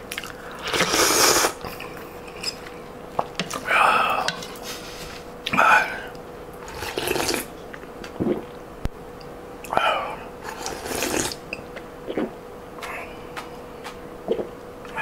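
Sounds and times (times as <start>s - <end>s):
breathing: 0.2s - 0.7s
slurping soup: 0.6s - 1.6s, 6.6s - 7.5s, 10.5s - 11.4s
swallowing: 10.6s - 14.6s.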